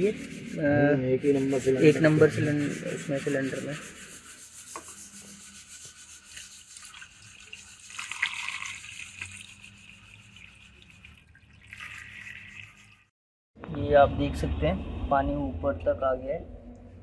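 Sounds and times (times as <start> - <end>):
water trickling and splashing: 6.3 - 13.1.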